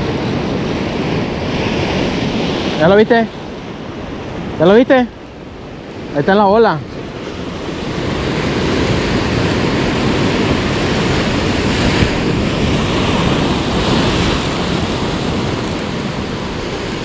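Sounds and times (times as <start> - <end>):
surf breaking on shore: 0.0 - 17.0
wind buffeting microphone: 0.0 - 17.0.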